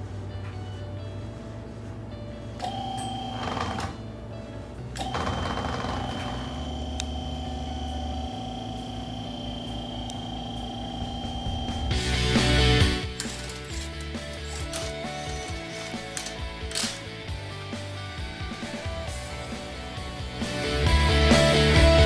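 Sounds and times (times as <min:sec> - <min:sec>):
hydraulic pump whining: 0:05.0 - 0:17.0.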